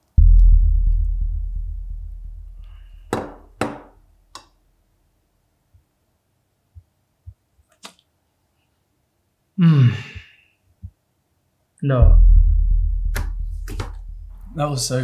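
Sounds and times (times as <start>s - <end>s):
sharp knocks: 0.0s - 4.0s, 13.0s - 14.4s
deep bass boom: 0.0s - 4.1s, 12.0s - 15.0s.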